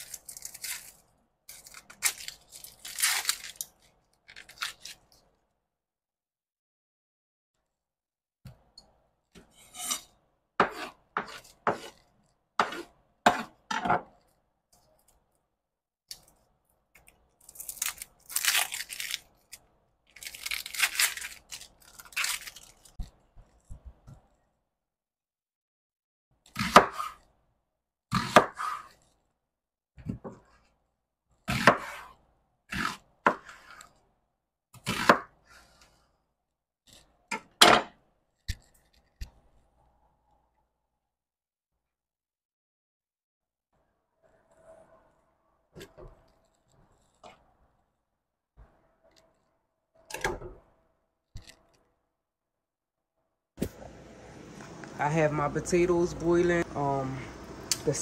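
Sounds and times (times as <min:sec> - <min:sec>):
onion skin tearing: 0:00.0 - 0:05.2, 0:17.0 - 0:23.1.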